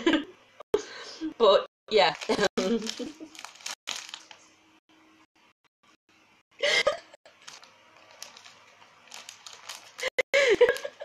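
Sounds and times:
woman laughing: 0.0 - 0.3, 2.3 - 3.4, 6.6 - 7.2, 10.0 - 11.0.

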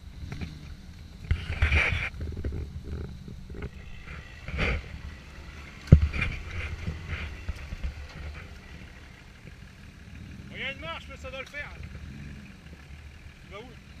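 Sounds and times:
off-road vehicle engine rumbling: 0.0 - 14.0
wind noise on microphone: 1.2 - 5.1.

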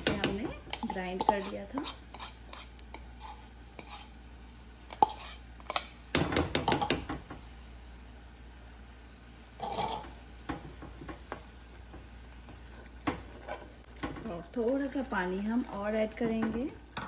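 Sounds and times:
metal spoon knocking on saucepan: 0.0 - 1.5, 6.1 - 7.2.

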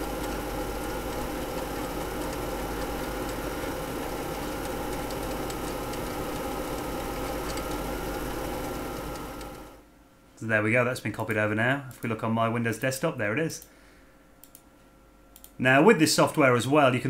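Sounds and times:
faint drive ticks: 0.0 - 9.8, 14.4 - 14.7, 15.3 - 15.6
floppy disk drive running: 0.0 - 9.9.

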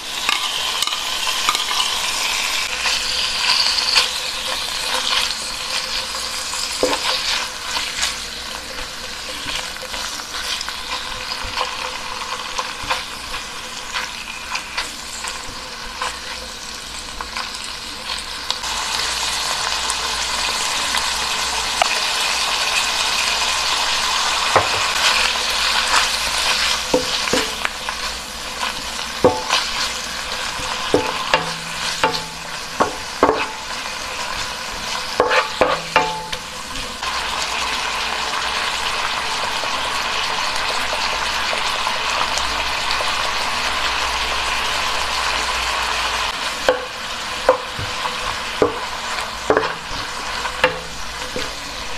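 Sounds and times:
meat and onion sizzling: 0.0 - 51.9
spatula tapping and scraping pan: 3.4 - 8.1, 25.8 - 28.0, 29.2 - 36.7, 46.6 - 51.6.

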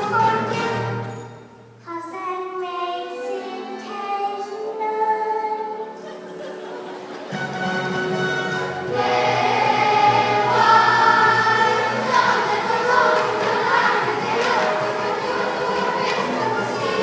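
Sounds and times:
stage musical music: 0.0 - 17.0
children's chorus singing: 8.6 - 17.0.

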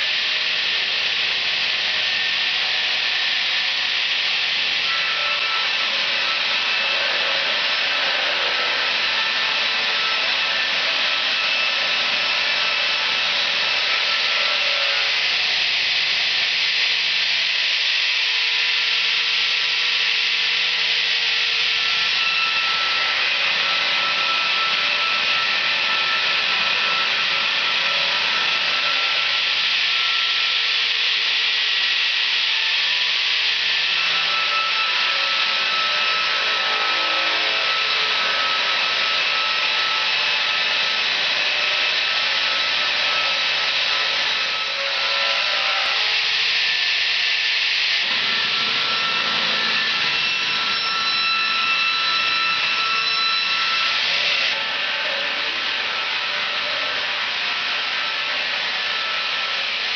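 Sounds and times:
chainsaw cutting through log: 18.3 - 59.9.

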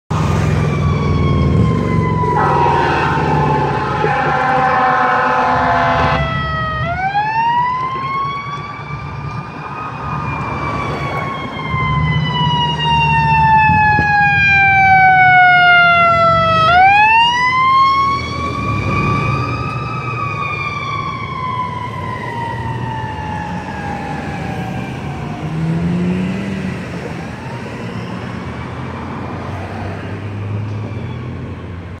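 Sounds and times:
fire engine siren wailing: 0.1 - 32.0
multi-tone air horn blast: 2.3 - 6.2.

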